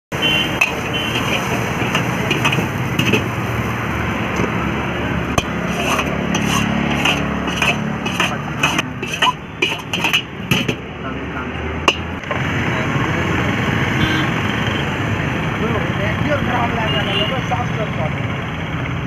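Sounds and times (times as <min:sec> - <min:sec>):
ladle scraping iron wok: 0:00.4 - 0:03.5, 0:05.3 - 0:10.8.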